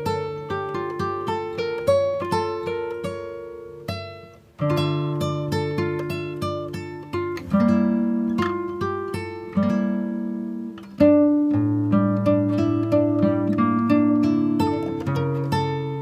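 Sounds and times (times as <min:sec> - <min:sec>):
plucked string instrumental music: 0:00.0 - 0:16.0.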